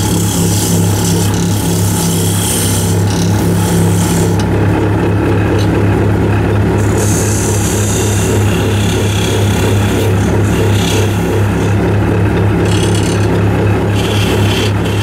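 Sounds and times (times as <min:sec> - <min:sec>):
lathe motor hum: 0:00.0 - 0:15.0
tool scraping spinning wood: 0:00.0 - 0:15.0.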